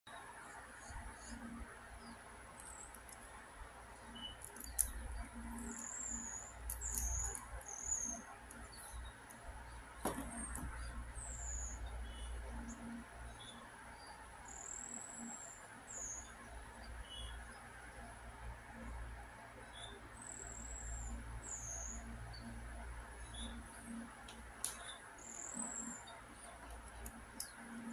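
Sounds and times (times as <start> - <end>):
faint high chirping squeaks: 4.0 - 9.2
plastic parts clicking: 4.4 - 5.8, 6.6 - 7.7.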